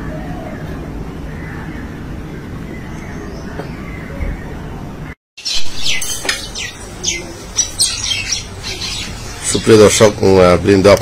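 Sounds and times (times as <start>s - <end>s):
birds squawking and chattering: 0.0s - 10.5s.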